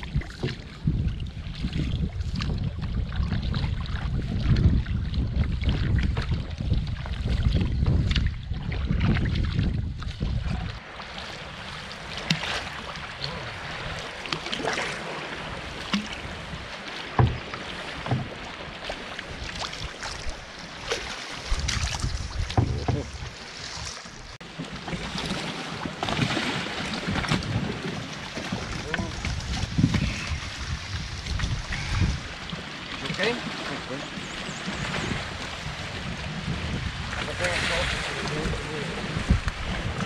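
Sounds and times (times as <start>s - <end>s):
water splashing against hull: 0.0s - 40.0s
wind on microphone: 0.0s - 40.0s
paddle knocks: 15.8s - 19.7s, 21.6s - 23.4s.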